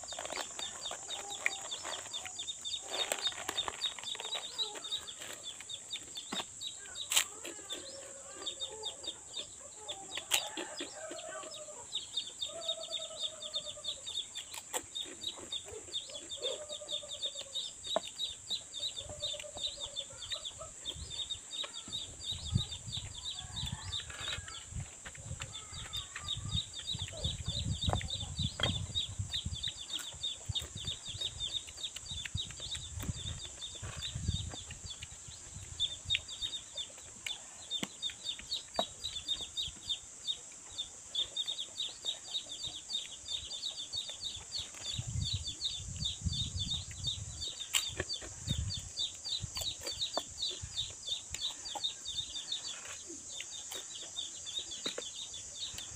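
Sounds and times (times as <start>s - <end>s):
birds chirping: 0.0s - 55.9s
chickens clucking: 0.0s - 55.9s
man chewing: 14.1s - 16.6s, 29.2s - 39.4s, 46.8s - 55.9s.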